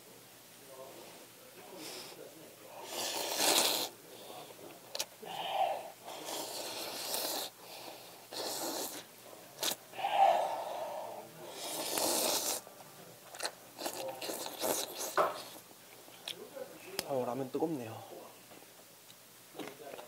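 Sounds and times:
person slurping noodles: 2.7 - 3.9, 4.9 - 12.6, 13.4 - 15.6
wet chewing: 13.3 - 16.4.

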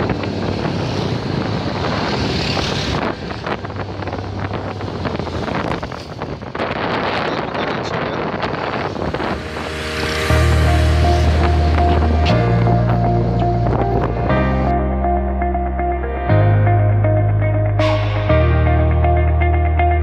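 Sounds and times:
wind buffeting microphone: 0.0 - 14.7
vehicle noise: 0.0 - 20.0.

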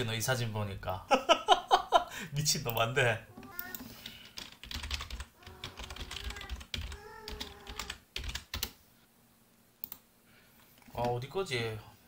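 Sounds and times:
computer keyboard typing: 3.6 - 8.8.

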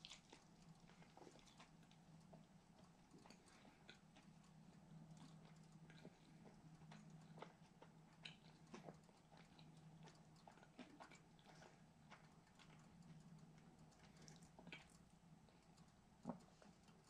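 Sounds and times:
chewing mouth clicks: 0.0 - 17.0
low steady hum: 0.0 - 17.0.

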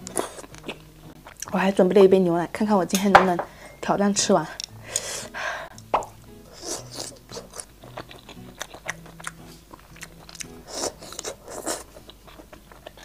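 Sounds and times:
close chewing with mouth clicks: 0.0 - 1.6, 6.5 - 13.0.

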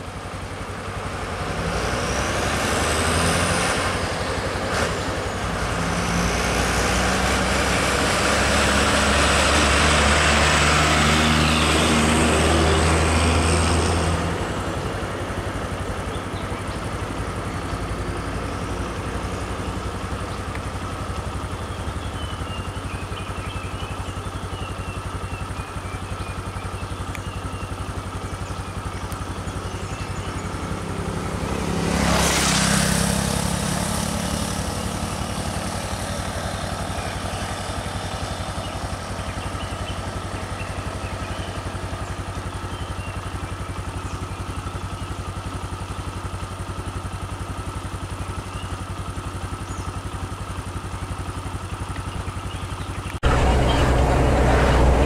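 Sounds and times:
engine idling: 0.0 - 55.0
vehicle passing by: 0.9 - 22.6, 29.2 - 42.2, 53.1 - 55.0.

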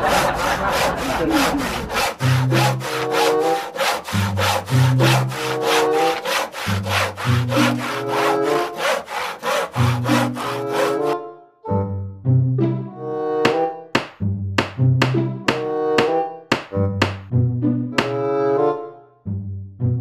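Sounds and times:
hand saw cutting wood: 0.0 - 11.2
background music: 1.4 - 20.0.

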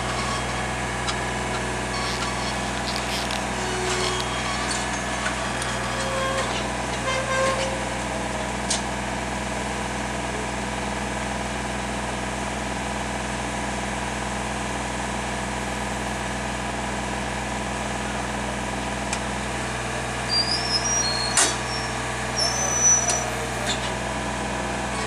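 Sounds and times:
short high squeak: 0.0 - 8.0, 20.2 - 24.0
engine idling: 0.0 - 25.0.

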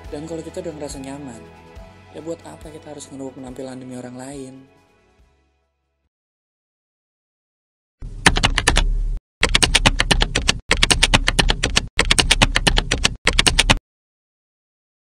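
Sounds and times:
computer keyboard typing: 8.2 - 13.8.

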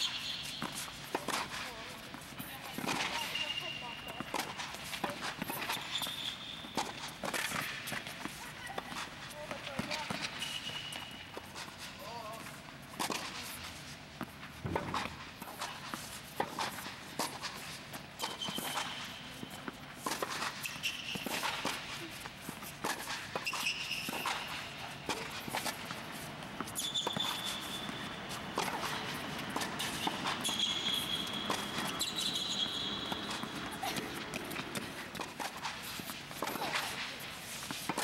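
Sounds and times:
shoes squeaking on court: 0.0 - 38.0
footsteps: 0.4 - 38.0
racket hitting tennis ball: 4.2 - 9.2, 14.6 - 38.0
ball bouncing: 14.6 - 15.3, 26.5 - 35.5.

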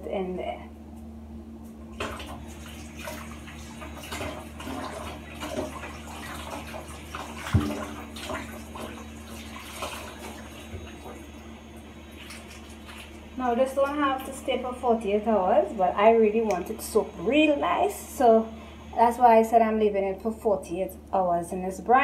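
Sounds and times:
water running from tap: 2.0 - 14.4.

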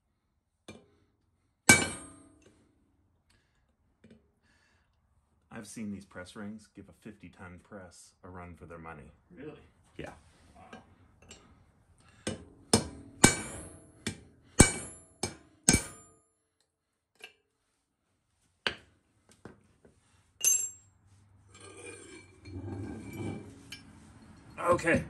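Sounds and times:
hammer striking chisel on metal: 1.7 - 2.2, 12.2 - 16.1
metal parts clinking: 20.4 - 20.9
low scraping rattle: 21.6 - 24.8.

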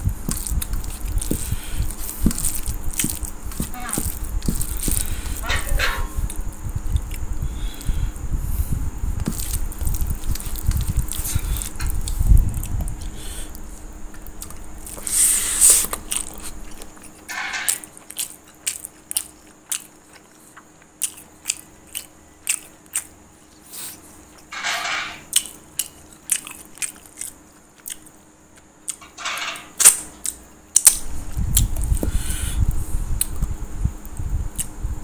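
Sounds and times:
wet chewing mouth clicks: 0.2 - 5.4
short hissing breaths: 7.4 - 8.8, 13.0 - 13.9, 15.0 - 15.9, 23.6 - 24.2, 32.0 - 33.1.

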